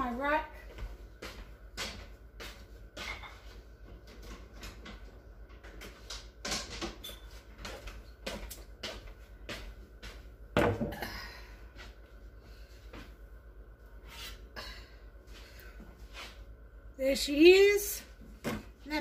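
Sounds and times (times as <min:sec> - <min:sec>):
kitchen clicks and knocks: 0:05.6 - 0:07.4.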